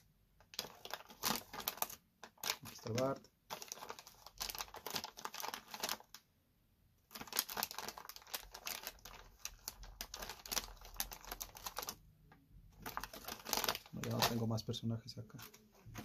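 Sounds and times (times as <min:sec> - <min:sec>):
plastic bag crinkling: 0:00.4 - 0:06.2, 0:07.1 - 0:12.0, 0:12.8 - 0:14.6.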